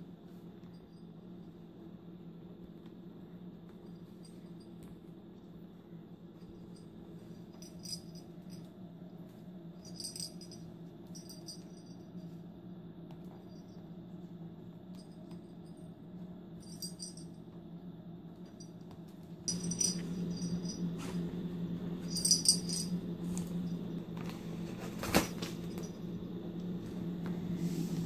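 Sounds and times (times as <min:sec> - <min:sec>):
steady low hum: 0:00.0 - 0:28.0
light jingling and rattling: 0:06.3 - 0:08.8, 0:09.7 - 0:12.3, 0:16.6 - 0:17.4, 0:18.4 - 0:21.2, 0:22.0 - 0:23.9.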